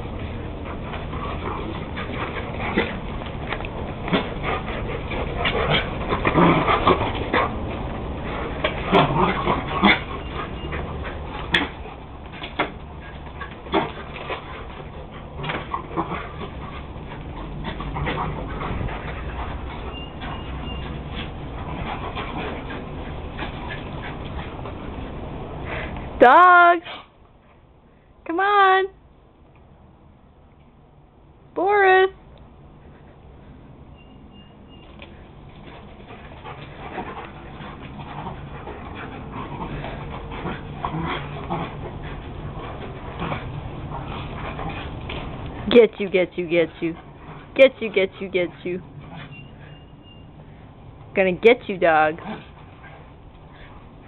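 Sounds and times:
dogs play-fighting: 0.0s - 26.2s, 26.8s - 27.9s, 32.3s - 54.0s
dogs yipping and whimpering: 8.8s - 11.8s, 13.0s - 24.2s, 48.9s - 50.4s.

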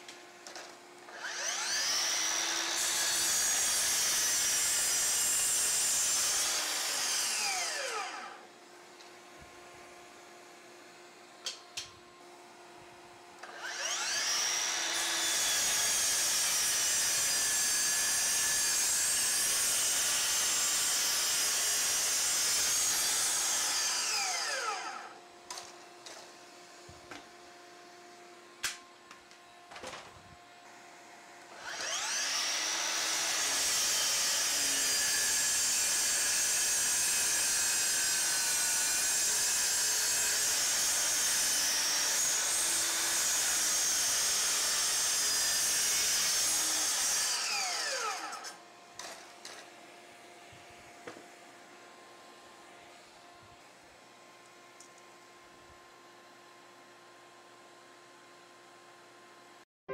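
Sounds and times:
miter saw whining: 1.1s - 8.5s, 13.4s - 25.2s, 31.4s - 48.6s.

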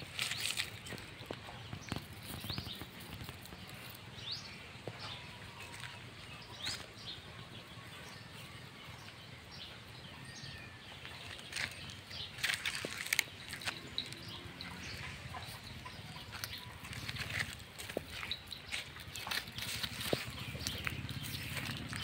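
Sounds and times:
faint clicks and rustles: 0.0s - 4.3s
small birds chirping: 0.0s - 22.0s.

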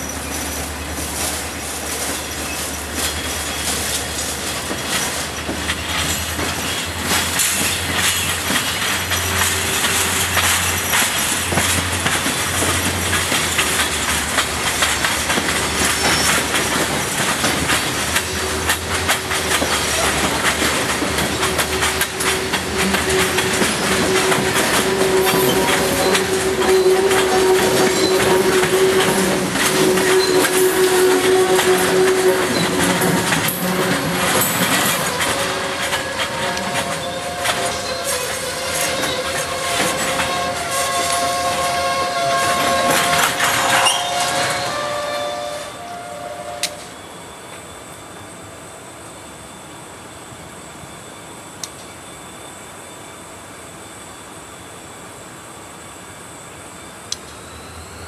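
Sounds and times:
train wheels clacking over rail joints: 0.0s - 45.2s
train wheel squeal: 0.0s - 48.6s, 56.4s - 58.0s.

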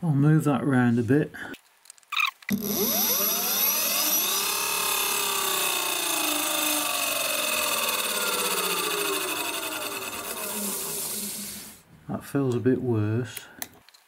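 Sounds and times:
electric hub motor whine: 2.5s - 11.8s.

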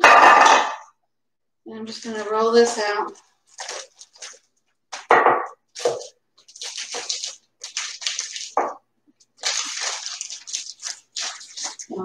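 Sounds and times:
plastic bag crinkling: 1.8s - 5.1s, 5.7s - 12.0s.

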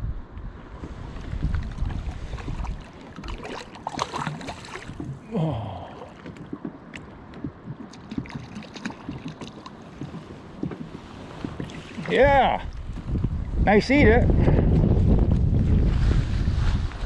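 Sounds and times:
wind rumbling on microphone: 0.0s - 17.0s
waves lapping against kayak hull: 0.4s - 17.0s
person saying oh: 5.2s - 6.1s.

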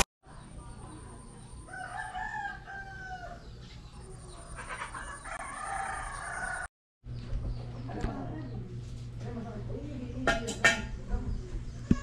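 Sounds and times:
rooster crowing: 1.7s - 3.5s, 4.8s - 6.7s.

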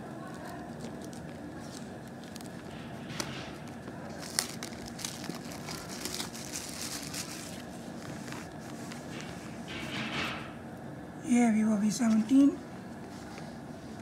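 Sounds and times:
plastic wrap crinkling: 0.0s - 9.3s.

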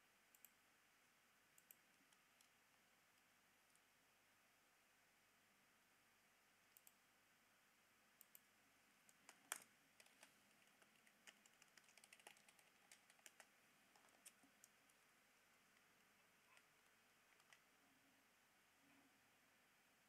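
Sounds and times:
keyboard and mouse clicks: 1.6s - 2.8s, 6.7s - 7.0s, 9.1s - 15.0s, 15.8s - 17.7s.

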